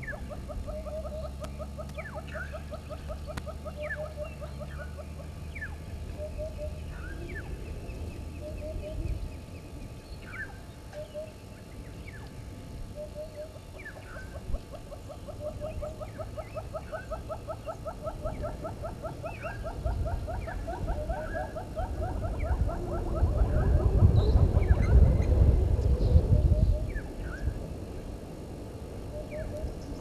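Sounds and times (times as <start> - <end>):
bird calling low notes: 0.0 - 27.6, 29.1 - 30.0
low rumble: 21.9 - 30.0.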